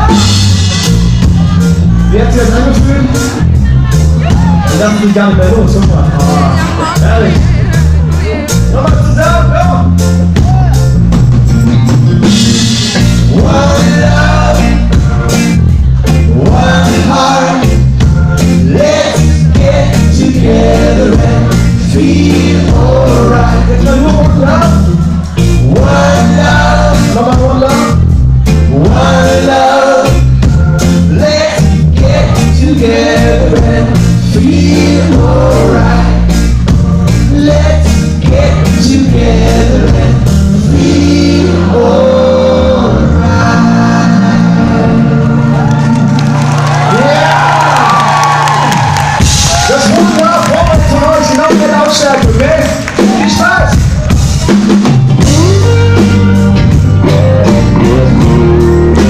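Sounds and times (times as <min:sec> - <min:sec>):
bass guitar: 0:00.0 - 0:59.0
drums: 0:00.0 - 0:59.0
man singing: 0:01.1 - 0:10.9, 0:12.5 - 0:45.6, 0:55.2 - 0:56.2, 0:57.0 - 0:59.0
electric guitar: 0:09.5 - 0:59.0.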